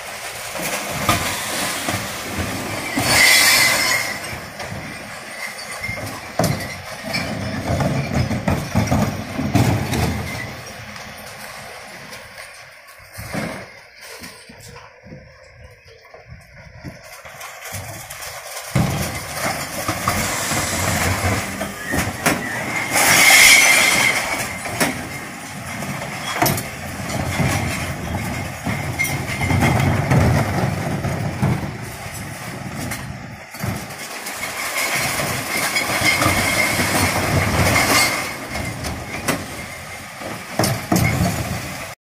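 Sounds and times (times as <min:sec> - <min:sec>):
truck engine running: 0:00.0 - 0:42.0
clattering in hopper: 0:00.1 - 0:14.8, 0:16.8 - 0:42.0
glass and cans crashing: 0:00.6 - 0:11.3, 0:18.5 - 0:32.2, 0:33.6 - 0:41.9.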